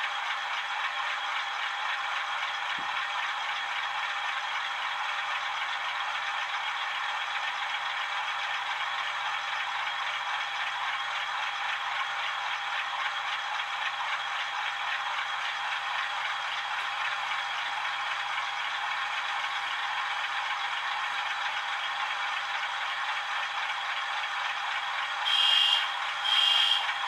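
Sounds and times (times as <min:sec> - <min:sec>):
thin diesel idle through small speakers: 0:00.0 - 0:27.0.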